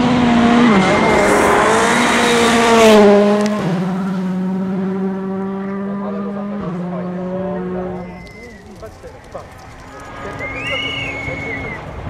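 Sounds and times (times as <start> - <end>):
rally car engine racing past: 0.0 - 8.2.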